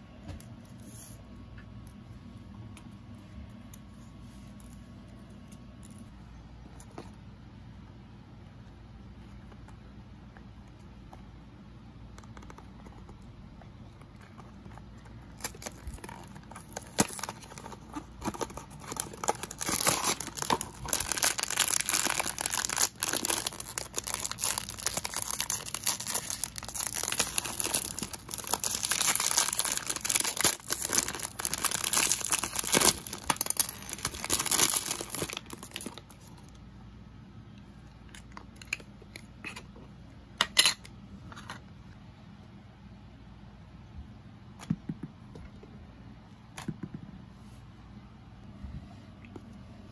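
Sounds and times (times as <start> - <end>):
foil and plastic packaging crinkling: 15.2 - 36.5.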